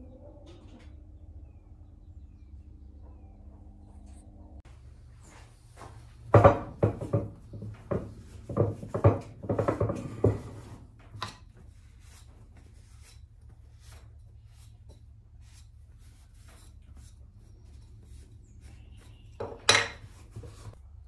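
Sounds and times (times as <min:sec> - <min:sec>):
tools knocking on workbench: 0:06.3 - 0:10.6.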